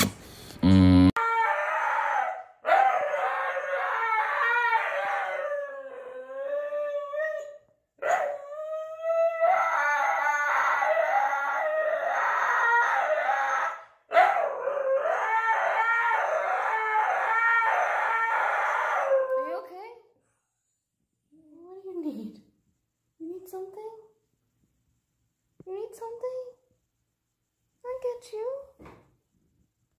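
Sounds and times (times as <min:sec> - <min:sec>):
husky howling: 0:01.2 - 0:19.6.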